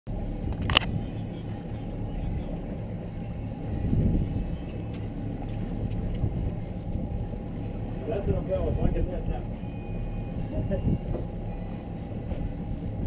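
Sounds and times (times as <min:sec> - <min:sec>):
outboard motors droning: 0:00.1 - 0:13.0.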